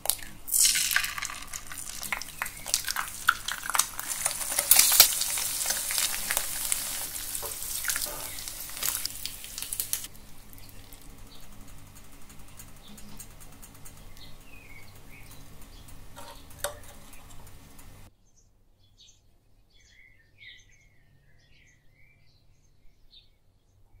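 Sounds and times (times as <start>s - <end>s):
faint crackling: 0.0s - 18.1s
bird chirps: 13.9s - 17.3s, 18.2s - 23.4s.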